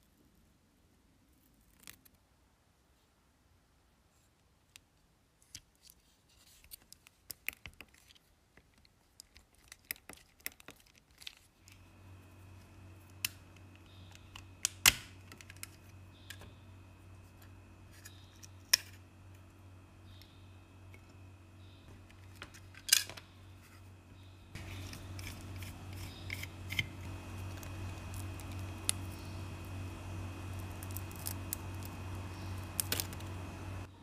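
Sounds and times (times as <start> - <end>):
sharp plastic snaps: 13.1 - 16.5.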